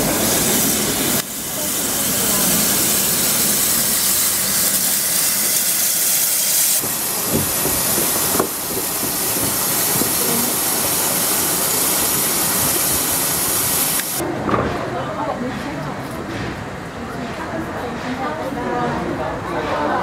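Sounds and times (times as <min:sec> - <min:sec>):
steam locomotive hissing: 0:00.0 - 0:14.2.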